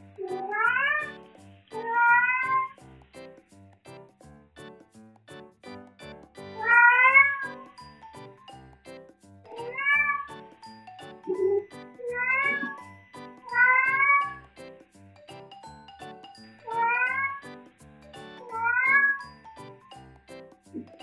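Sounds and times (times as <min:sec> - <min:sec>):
light music with plucked notes: 0:00.0 - 0:21.0
cat meowing: 0:00.3 - 0:01.2, 0:01.8 - 0:02.8, 0:06.6 - 0:07.5, 0:09.5 - 0:10.4, 0:11.3 - 0:12.8, 0:13.5 - 0:14.4, 0:16.7 - 0:17.4, 0:18.5 - 0:19.2.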